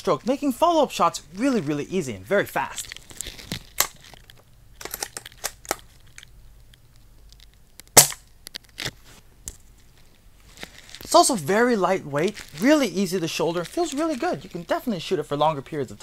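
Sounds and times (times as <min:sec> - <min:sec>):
airsoft rifle shot: 0:08.0 - 0:08.2.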